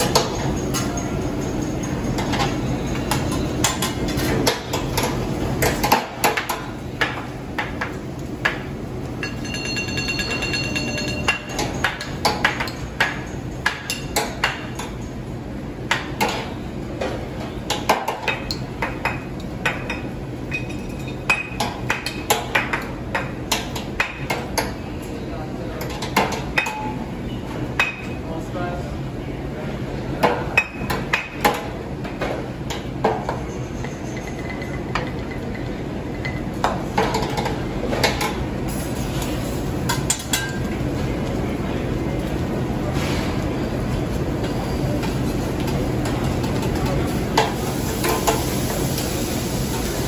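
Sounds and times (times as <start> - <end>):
ringing metallic ping: 9.2 - 11.6.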